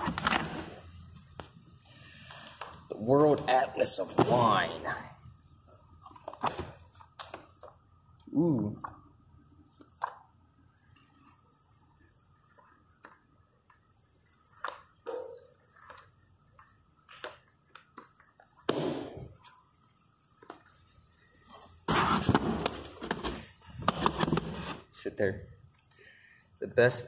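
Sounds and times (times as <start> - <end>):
book pages turning: 0.0 - 1.6, 12.4 - 15.0, 15.6 - 18.6
book scraping against cardboard box: 21.9 - 23.2.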